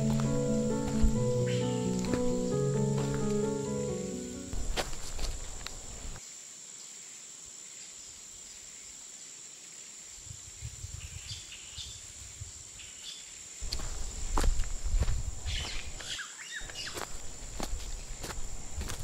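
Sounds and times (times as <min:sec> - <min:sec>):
bird chirps: 0:00.0 - 0:02.6, 0:15.5 - 0:17.1.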